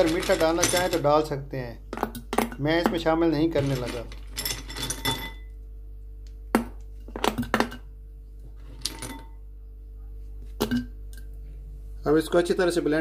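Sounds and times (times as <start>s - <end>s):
kitchen objects clinking: 0.0s - 1.1s, 2.0s - 5.5s
faint steady hum: 0.0s - 13.0s.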